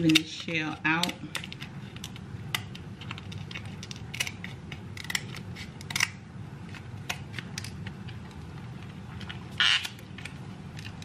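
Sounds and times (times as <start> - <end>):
shears cracking crab shell: 1.0 - 8.1.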